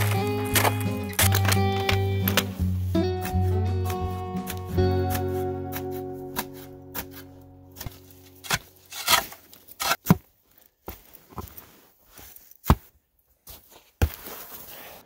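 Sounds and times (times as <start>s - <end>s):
boots crunching in snow: 0.0s - 10.2s, 10.8s - 15.0s
spade scraping into snow: 5.3s - 10.1s.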